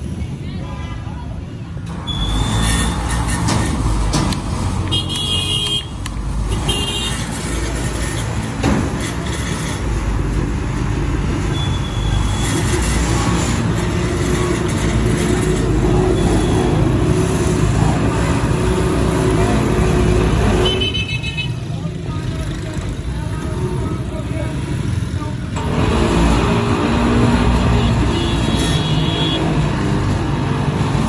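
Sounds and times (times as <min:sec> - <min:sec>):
traffic engines running: 0:00.0 - 0:31.0
vehicle horn toots: 0:04.9 - 0:07.2, 0:20.6 - 0:21.6.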